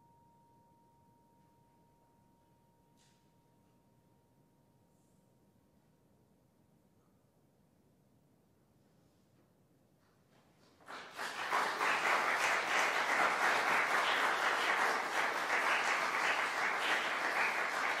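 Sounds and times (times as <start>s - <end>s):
audience applause: 10.8s - 18.0s.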